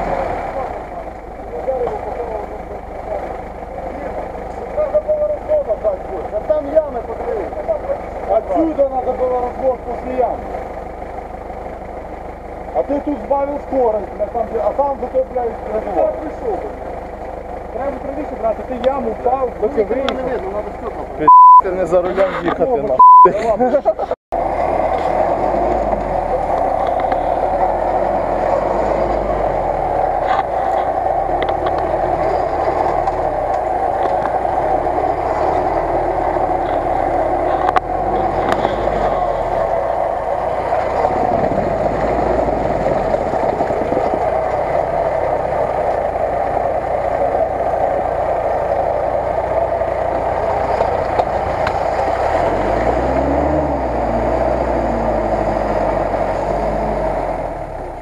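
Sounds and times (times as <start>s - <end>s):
car engine revving hard: 0.0s - 1.0s, 24.4s - 58.0s.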